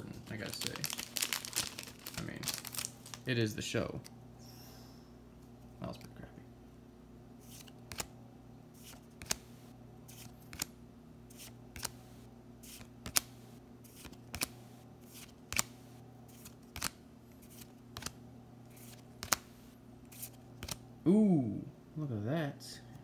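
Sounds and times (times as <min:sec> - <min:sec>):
steady low hum: 0:00.0 - 0:23.0
cards flipped with crisp snap: 0:07.4 - 0:08.1, 0:08.8 - 0:09.5, 0:10.1 - 0:10.7, 0:11.3 - 0:12.0, 0:12.6 - 0:20.8.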